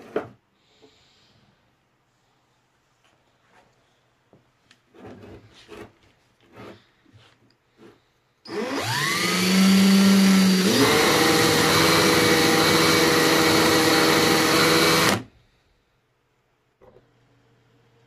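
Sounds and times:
cordless drill whine: 0:08.5 - 0:15.3.

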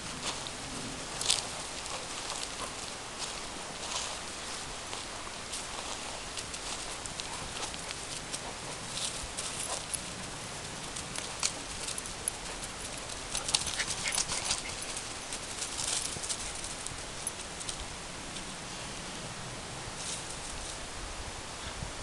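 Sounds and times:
dog paws crunching on leaves: 0:00.0 - 0:18.2
steady hiss: 0:00.0 - 0:22.0.

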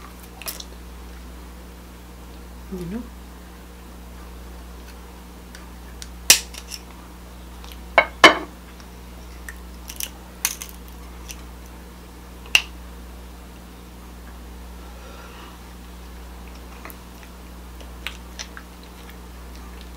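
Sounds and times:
crab shell cracking by hand: 0:05.5 - 0:06.9, 0:08.8 - 0:11.4.

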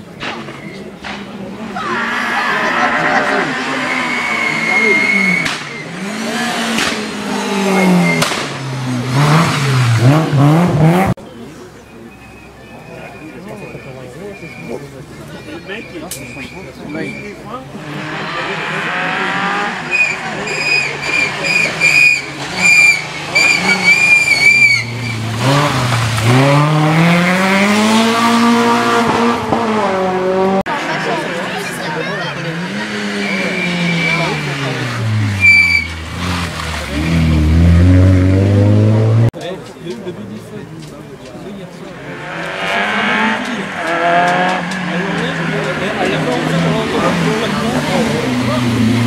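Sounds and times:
rally car engine revving: 0:00.1 - 0:11.2, 0:17.3 - 0:49.0
sharp cracks: 0:05.4 - 0:05.8.

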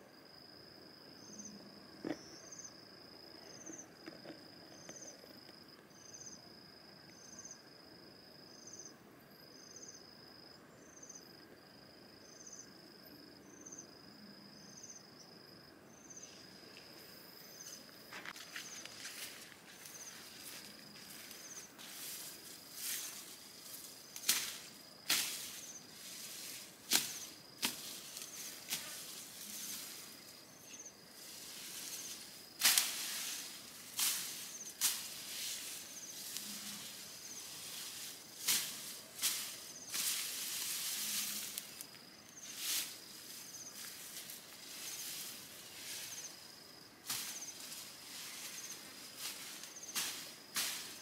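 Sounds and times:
footsteps through dry grass: 0:17.7 - 0:30.4, 0:31.2 - 0:51.0.

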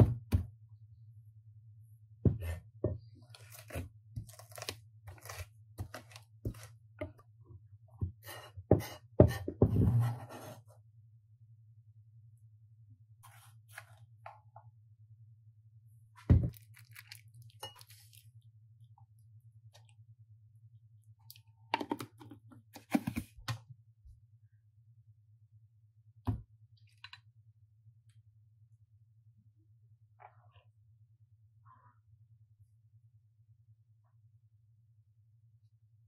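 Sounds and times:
clinks and scrapes in glass bowl: 0:17.6 - 0:18.2.

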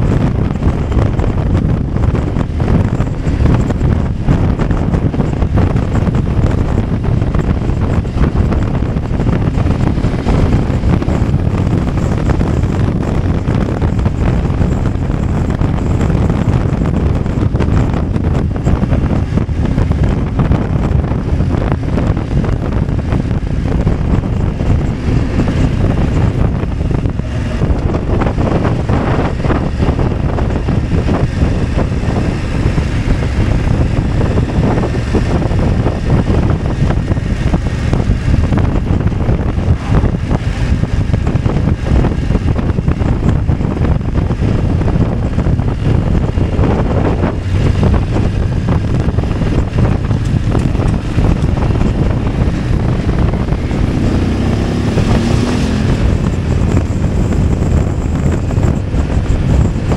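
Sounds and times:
motorcycle engine running: 0:00.0 - 0:59.9
road noise: 0:00.0 - 0:59.9
wind noise on microphone: 0:00.0 - 0:59.9.

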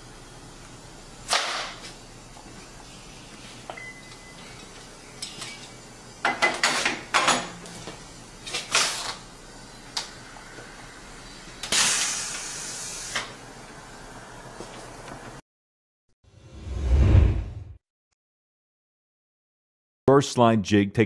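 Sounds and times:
compressed air hissing: 0:11.6 - 0:13.4.

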